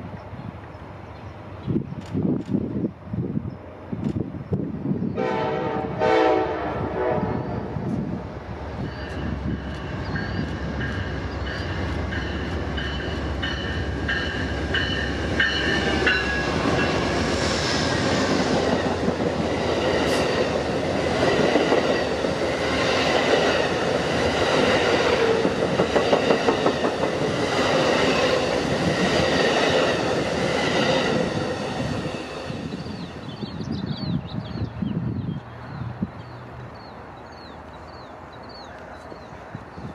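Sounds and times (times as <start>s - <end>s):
train horn: 5.2s - 8.0s
train wheels clacking over rail joints: 25.2s - 28.2s.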